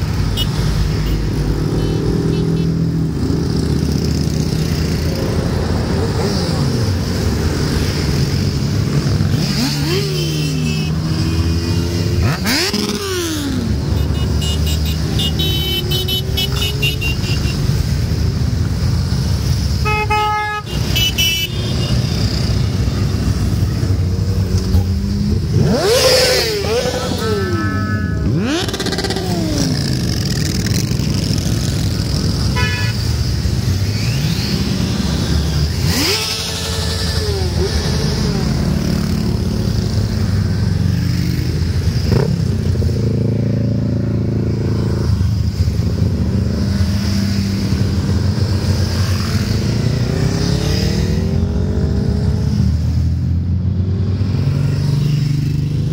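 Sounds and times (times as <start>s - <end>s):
motorcycles riding past: 0.0s - 19.8s, 20.6s - 55.9s
horn honks: 13.9s - 17.7s, 19.8s - 23.3s, 26.6s - 28.6s, 32.5s - 33.2s.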